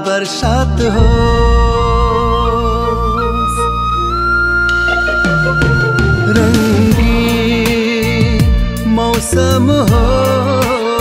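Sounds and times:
steady bass line: 1.0 - 7.6.

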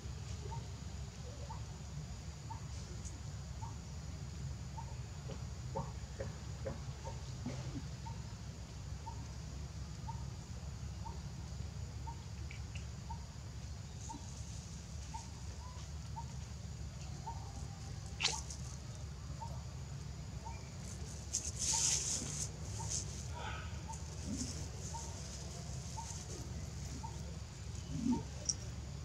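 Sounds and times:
animal peeping: 17.0 - 19.6, 20.4 - 28.8.

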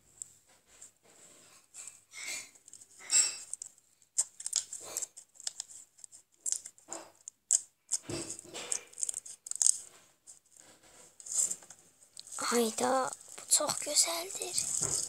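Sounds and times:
slime crackling and squelching: 3.5 - 10.0, 10.6 - 15.0.

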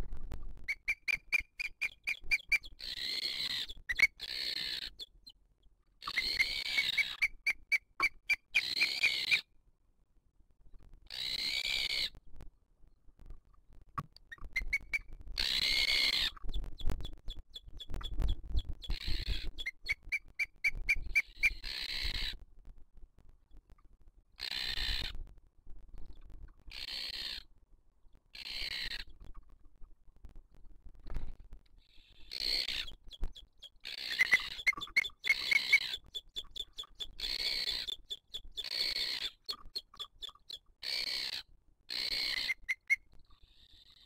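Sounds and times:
eagle calling: 0.7 - 5.1, 6.0 - 9.4, 14.3 - 22.4, 32.3 - 43.0.

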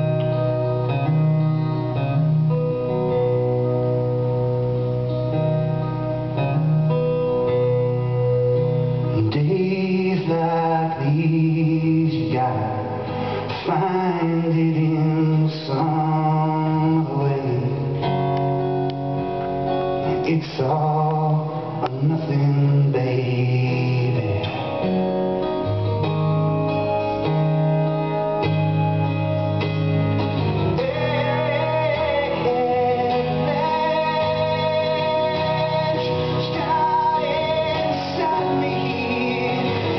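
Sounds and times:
acoustic guitar chords: 0.0 - 39.9
man singing: 9.1 - 18.2, 20.0 - 25.0, 30.7 - 39.9.

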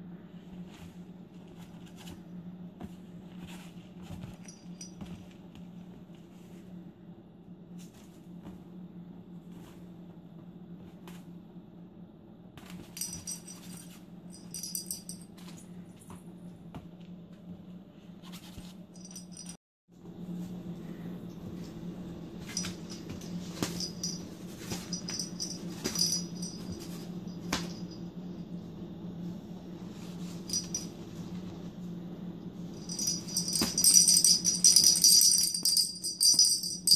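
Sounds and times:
steady low hum: 0.0 - 36.9
bell toy jingling: 13.0 - 15.2, 19.0 - 19.6, 22.5 - 28.0, 30.5 - 30.9, 32.8 - 36.9.

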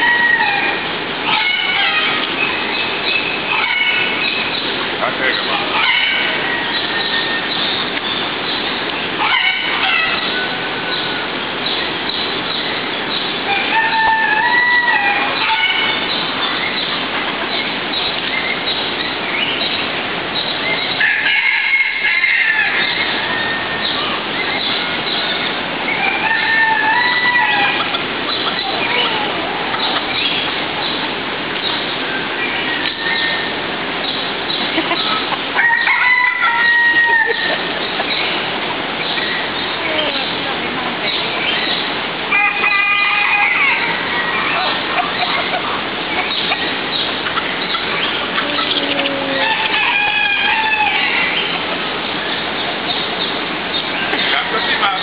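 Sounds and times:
rooster crowing: 0.0 - 2.2, 5.7 - 7.6, 13.5 - 16.0, 21.0 - 24.0, 25.9 - 28.0, 35.6 - 37.7, 42.3 - 44.8, 48.4 - 51.5
steady rushing hiss: 0.0 - 14.0, 15.2 - 21.4, 22.0 - 55.0
chickens clucking: 0.0 - 55.0
many birds chirping: 0.0 - 55.0
steady background noise: 0.0 - 55.0.

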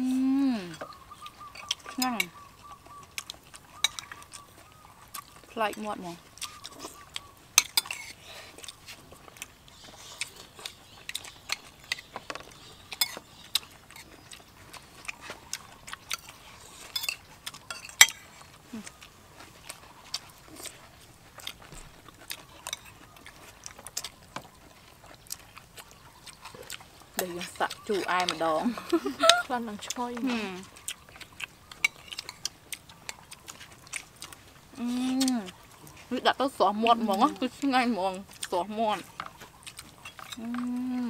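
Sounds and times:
spoons clinking on plates: 3.8 - 4.1, 7.6 - 8.2, 16.9 - 18.3.

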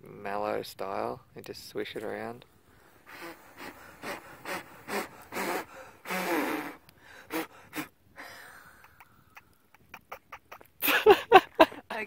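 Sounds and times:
woman blowing short puffs: 2.8 - 10.0
woman gasping: 3.0 - 9.4.

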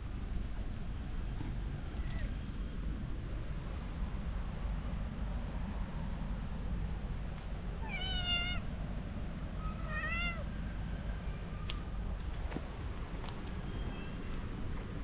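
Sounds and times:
cat meowing: 1.9 - 2.3, 7.8 - 8.7, 9.6 - 10.5.

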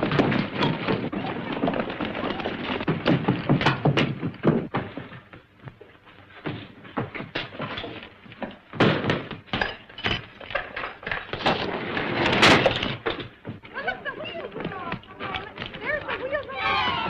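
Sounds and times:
knocks and clatter at cell door: 2.5 - 5.3.

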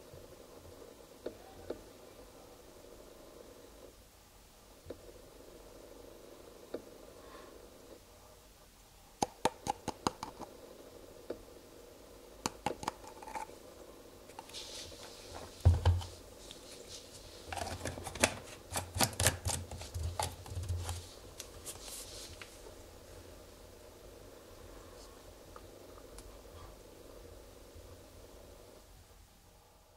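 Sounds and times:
rubbing hiss: 13.1 - 18.6, 20.1 - 28.8.

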